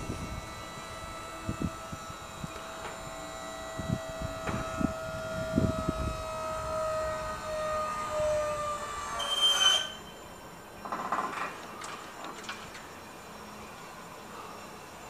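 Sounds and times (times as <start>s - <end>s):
motor and pump whine: 0.0s - 15.0s
low knocks from scissor lift: 4.3s - 4.9s.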